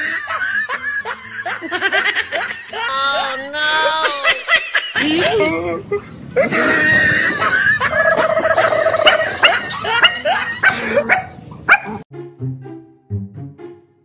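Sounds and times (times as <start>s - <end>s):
dog barking and yelping: 7.4s - 12.0s.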